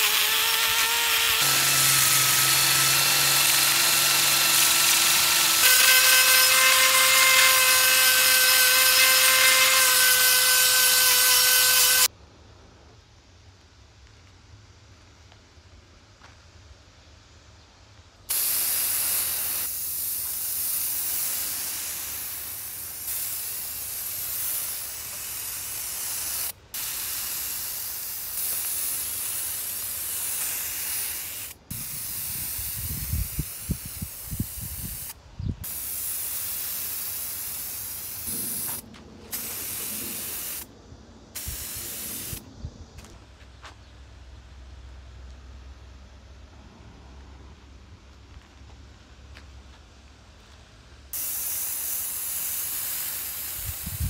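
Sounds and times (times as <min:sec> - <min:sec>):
spray paint hissing from can: 0:00.0 - 0:12.1, 0:18.3 - 0:40.7, 0:41.4 - 0:42.4, 0:51.1 - 0:54.0.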